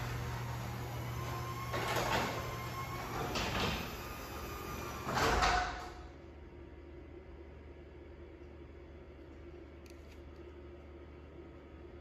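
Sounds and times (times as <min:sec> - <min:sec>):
garage door opener motor hum: 0:00.0 - 0:06.4.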